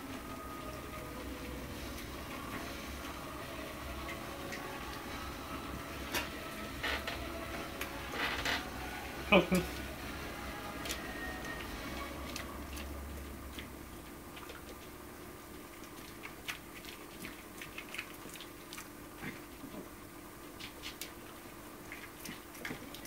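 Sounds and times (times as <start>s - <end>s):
dog chewing crunchy crust: 12.0s - 23.0s.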